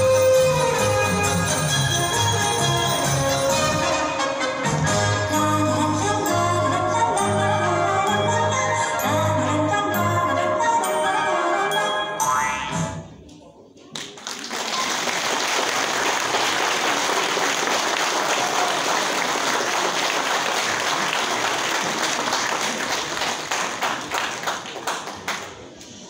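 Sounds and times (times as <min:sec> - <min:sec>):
audience applauding: 0:14.0 - 0:25.8.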